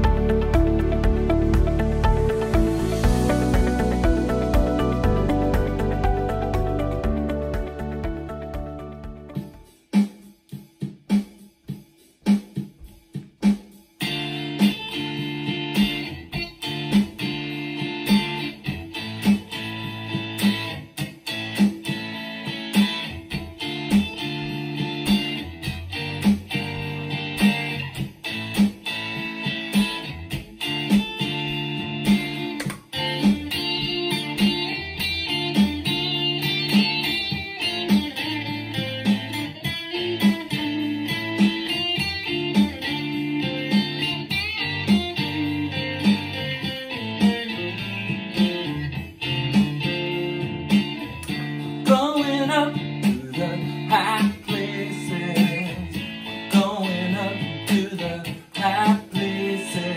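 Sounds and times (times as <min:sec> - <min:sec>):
electric guitar through amp: 0:00.0 - 0:09.7, 0:14.0 - 0:59.9.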